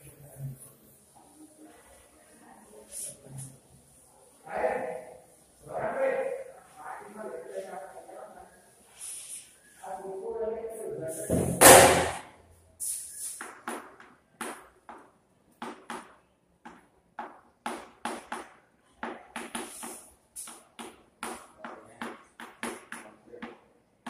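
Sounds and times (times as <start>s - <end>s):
chalk tapping and scratching: 12.8s - 23.7s.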